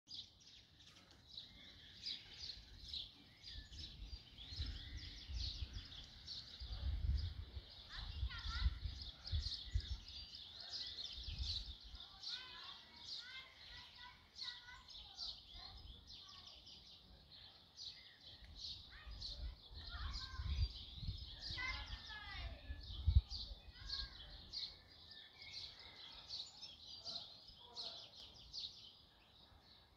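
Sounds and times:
faint outdoor background noise: 0:00.1 - 0:29.9
songbirds chirping: 0:00.1 - 0:29.9
lower whistled bird notes: 0:01.4 - 0:11.9.

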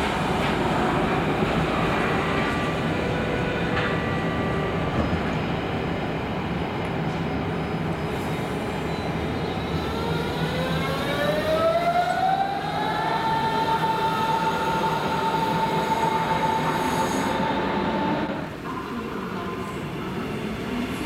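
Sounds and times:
train rumbling: 0:00.0 - 0:21.0
electric train motors whining: 0:09.8 - 0:18.5.

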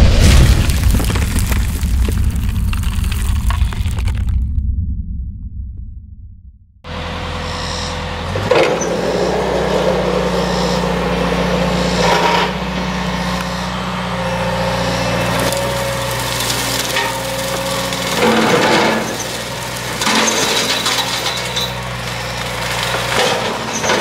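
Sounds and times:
excavator engine: 0:06.8 - 0:24.0
hydraulic brush cutter cutting: 0:07.5 - 0:24.0
wood snapping: 0:15.3 - 0:23.4.

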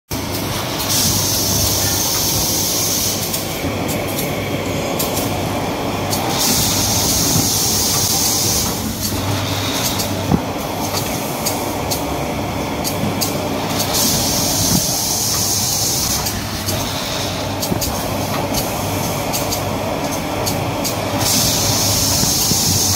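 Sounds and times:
low machine hum: 0:00.1 - 0:22.9
high hiss: 0:00.6 - 0:12.1
quick regular mechanical clicks: 0:05.0 - 0:12.1, 0:12.8 - 0:22.9.

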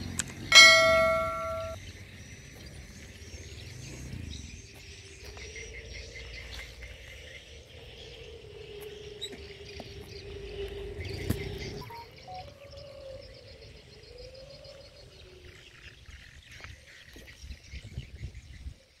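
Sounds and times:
wavering hum: 0:00.0 - 0:01.8
insects trilling: 0:00.0 - 0:18.0
birds chirping: 0:00.0 - 0:18.7
wind rumbling on microphone: 0:14.7 - 0:18.8.

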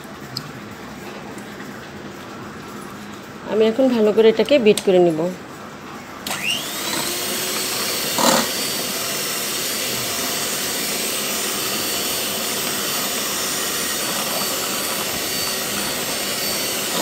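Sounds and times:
electric hand mixer running: 0:06.2 - 0:17.0.

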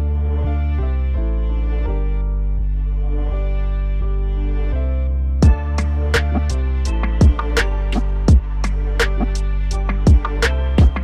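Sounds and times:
sustained bass line: 0:00.0 - 0:11.0
steady drum beat: 0:05.4 - 0:11.0.

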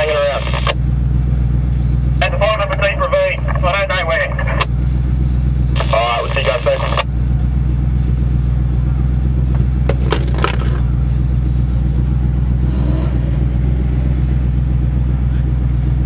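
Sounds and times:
truck engine idling: 0:00.0 - 0:16.0.

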